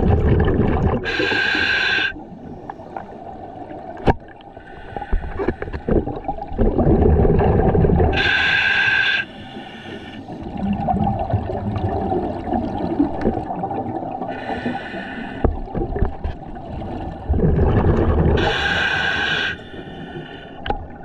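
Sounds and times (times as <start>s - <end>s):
bubbling gurgling exhales: 0.0s - 1.8s, 5.8s - 8.4s, 17.0s - 19.1s
hissing inhales through regulator: 1.0s - 2.2s, 4.5s - 5.9s, 8.2s - 10.4s, 14.3s - 15.5s, 18.4s - 20.6s.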